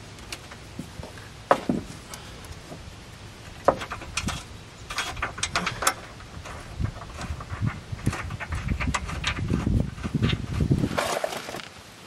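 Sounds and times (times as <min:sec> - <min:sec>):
rattle of small clicks: 0:03.7 - 0:10.4.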